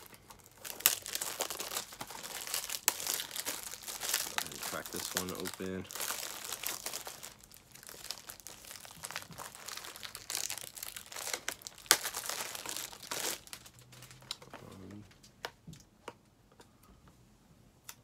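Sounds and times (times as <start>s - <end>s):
plastic wrap tearing and crinkling: 0.0s - 14.6s.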